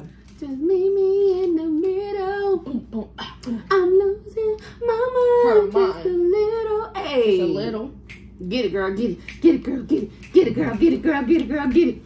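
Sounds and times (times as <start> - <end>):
woman singing wordless tune: 0.0 - 7.6, 8.4 - 12.0.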